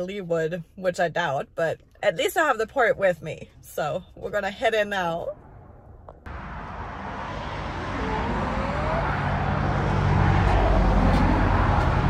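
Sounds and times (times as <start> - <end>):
vehicle engine and tyre noise: 5.4 - 12.0.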